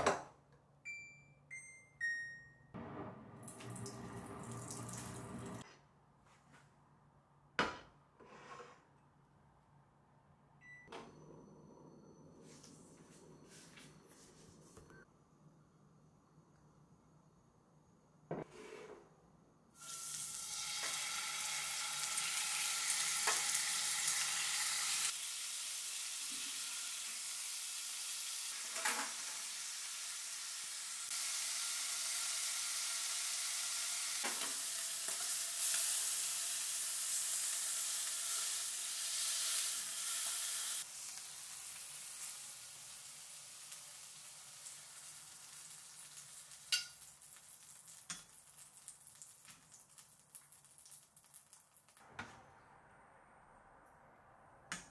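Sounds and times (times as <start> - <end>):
meat sizzling in frying pan: 19.8 - 51.7.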